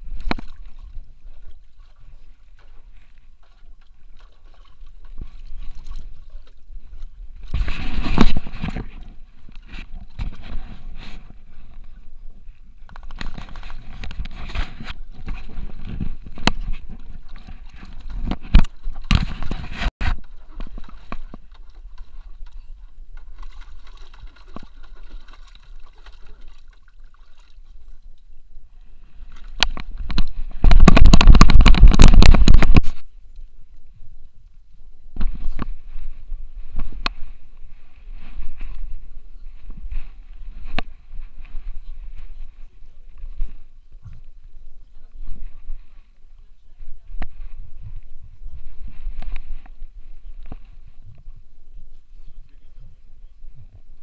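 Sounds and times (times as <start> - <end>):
camera scraping and bumping: 7.4 - 11.8, 12.9 - 25.4, 29.4 - 33.1, 38.1 - 42.5.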